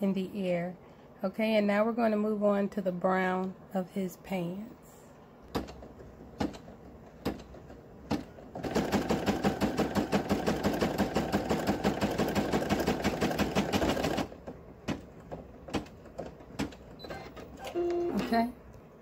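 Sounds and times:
embroidery machine stitching: 8.1 - 14.4.

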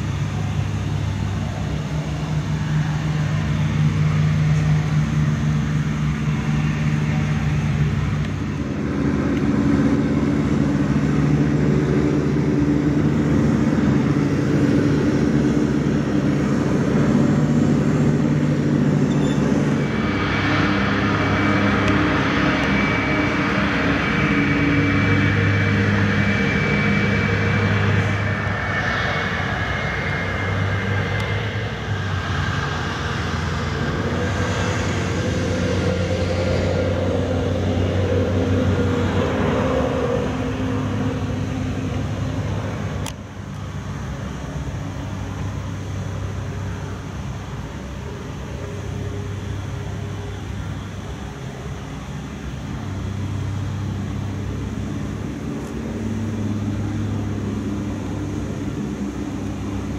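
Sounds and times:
high engine whine: 0.0 - 59.9
jet engines rumbling: 0.0 - 59.9.

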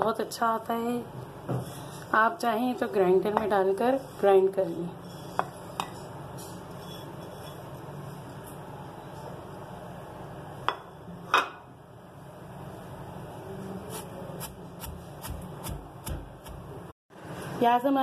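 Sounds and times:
pestle pounding in metal mortar: 14.8 - 16.7.

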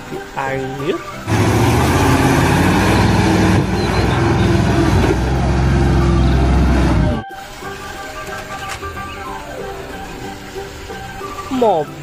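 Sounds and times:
truck engine droning: 1.3 - 7.2.

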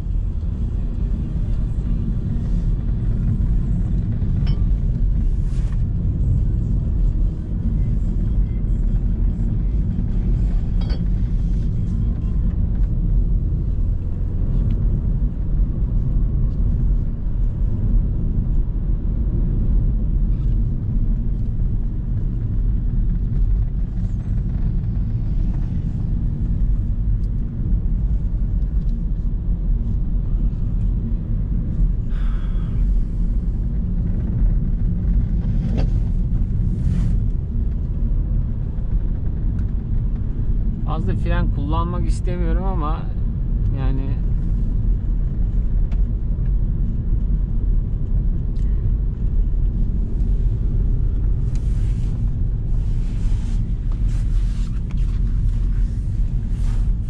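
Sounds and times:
car road and engine rumble: 0.0 - 57.0.

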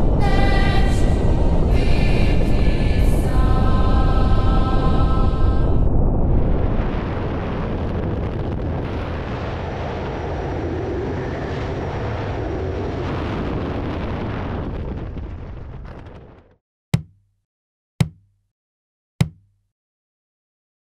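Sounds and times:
freefall wind roaring: 0.0 - 16.4.

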